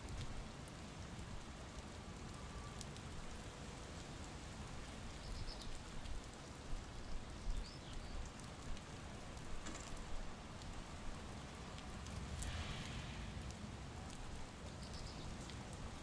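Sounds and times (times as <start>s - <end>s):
water dripping and trickling: 0.0s - 16.0s.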